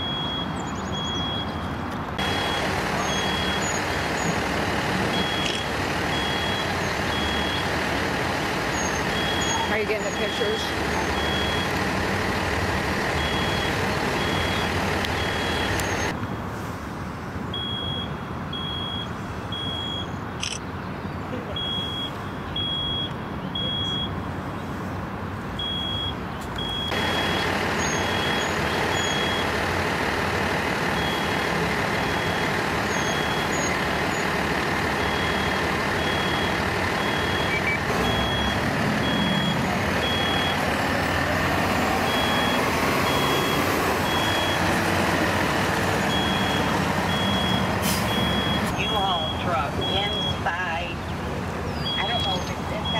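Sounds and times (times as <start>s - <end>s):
engines rumbling: 0.0s - 52.9s
street noise: 0.0s - 52.9s
high-pitched electronic beep: 51.8s - 52.9s.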